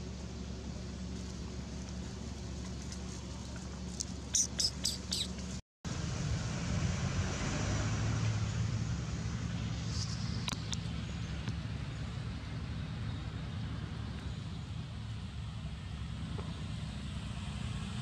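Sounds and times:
road traffic rumble: 0.0s - 18.0s
short high chirps: 4.3s - 5.3s.

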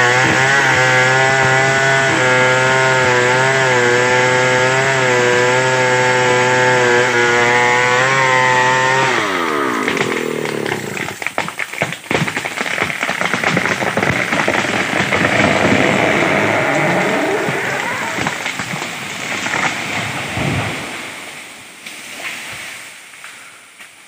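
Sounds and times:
chainsaw cutting wood: 0.0s - 21.2s
sharp snaps of wood: 9.4s - 18.8s.

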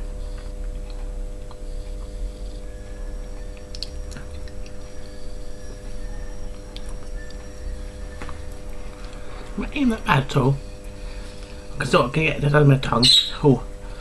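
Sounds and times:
steady low hum: 0.0s - 14.0s
man chewing cracker: 0.3s - 2.7s, 3.3s - 5.0s.

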